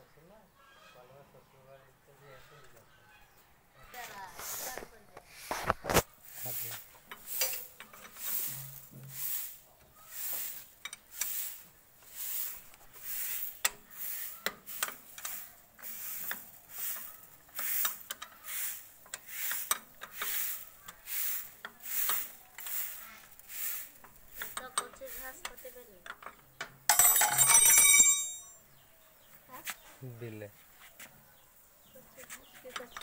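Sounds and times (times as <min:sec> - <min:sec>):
metal scraping strokes: 0:05.4 - 0:09.6.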